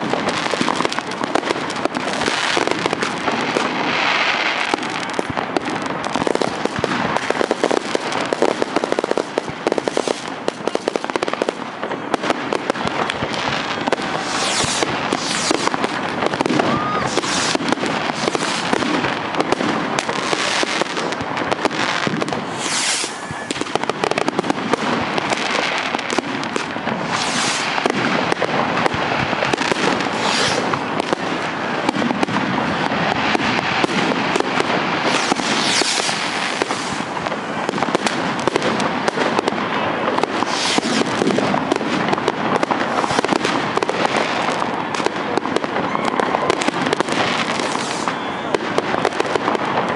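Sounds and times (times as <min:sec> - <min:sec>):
fireworks bangs and crackling: 0:00.0 - 0:49.9
loud firework bang: 0:12.2 - 0:44.0.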